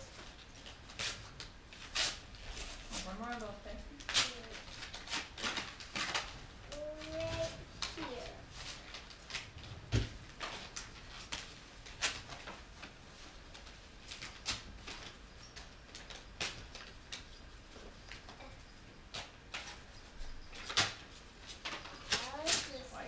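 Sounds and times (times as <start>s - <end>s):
wrapping paper rustling and tearing: 0.0s - 17.3s, 20.5s - 23.0s.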